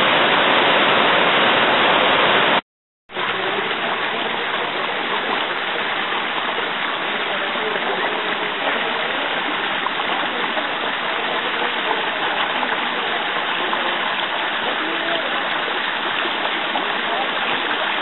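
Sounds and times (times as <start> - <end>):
creek water flowing over stones: 0.0 - 18.0.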